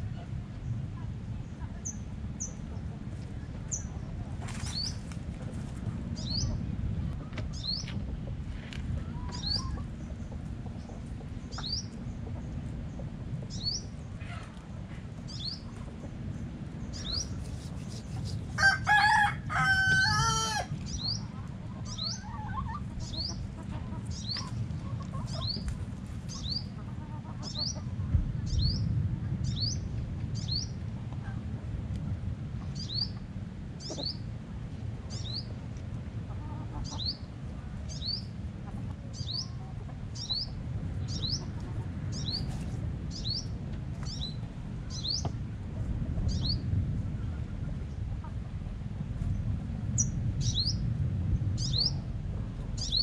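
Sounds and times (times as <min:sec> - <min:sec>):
low background rumble: 0:00.0 - 0:53.0
rooster crowing: 0:18.5 - 0:20.8.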